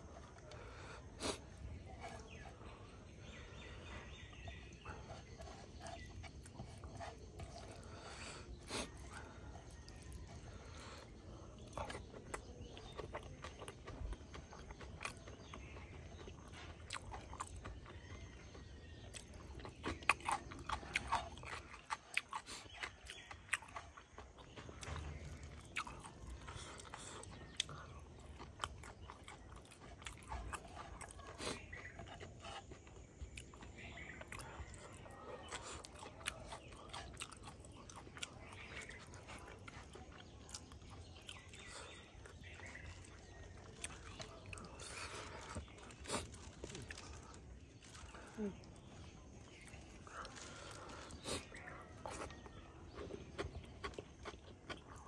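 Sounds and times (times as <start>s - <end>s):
person chewing and crunching: 0.0s - 55.0s.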